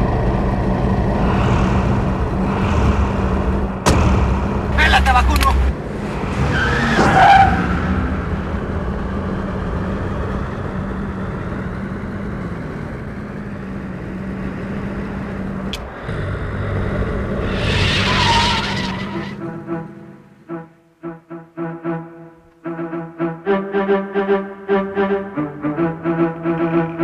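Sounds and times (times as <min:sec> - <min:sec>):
car engine running: 0:00.0 - 0:06.8, 0:07.5 - 0:20.5
tire squeal: 0:06.2 - 0:08.4, 0:15.9 - 0:19.6
music: 0:19.4 - 0:27.0.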